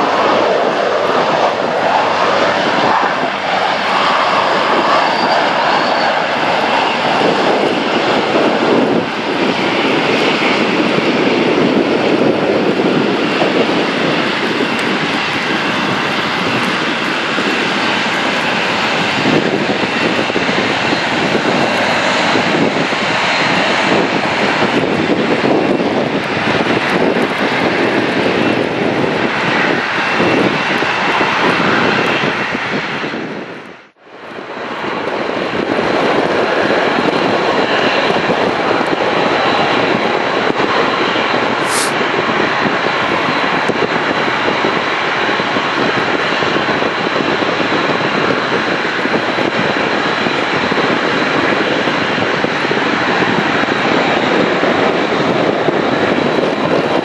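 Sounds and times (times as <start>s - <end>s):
jet engines roaring: 0.0s - 57.0s.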